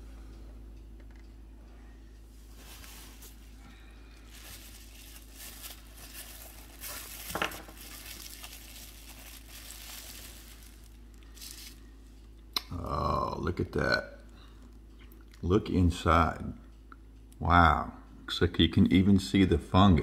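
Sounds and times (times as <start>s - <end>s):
bubble wrap crinkling: 4.2s - 11.9s.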